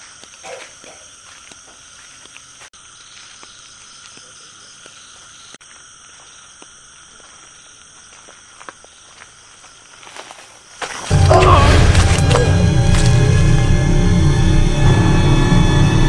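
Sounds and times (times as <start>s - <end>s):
frogs calling: 0.0s - 13.4s
insects calling: 0.0s - 16.0s.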